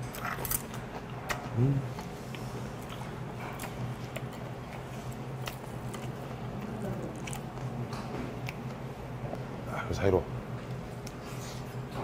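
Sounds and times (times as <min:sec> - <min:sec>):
person chewing food: 0:00.0 - 0:09.5.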